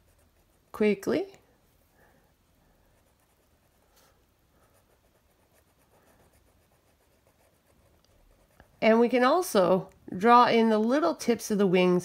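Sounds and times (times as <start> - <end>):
felt-tip pen scratching on paper: 0.0 - 1.0, 2.9 - 9.0.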